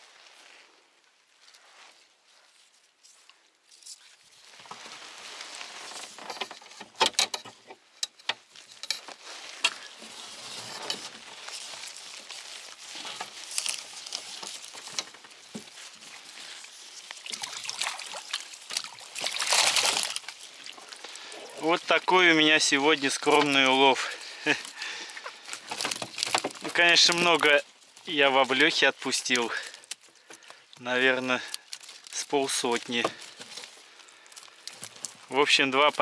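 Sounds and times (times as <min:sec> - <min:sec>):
water splashing and dripping: 0:11.4 - 0:33.4.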